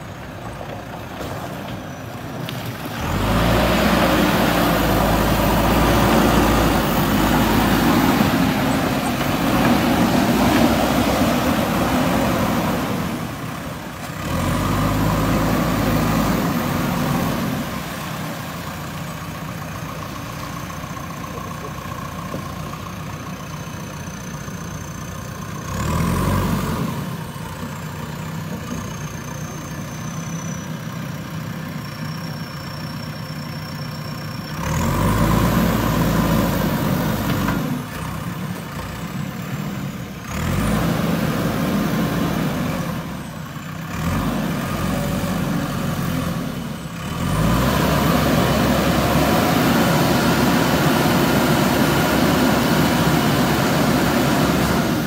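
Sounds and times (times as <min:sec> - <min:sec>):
diesel engine idling and revving: 0:00.0 - 0:55.0.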